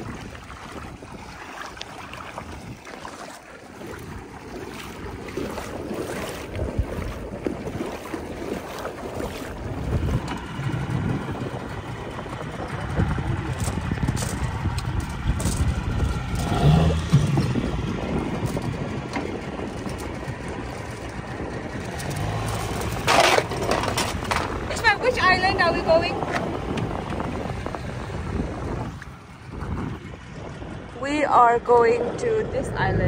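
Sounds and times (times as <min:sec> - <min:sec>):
water rushing: 0:00.0 - 0:15.1
motorboat engine running: 0:00.0 - 0:33.0
wind: 0:00.0 - 0:33.0.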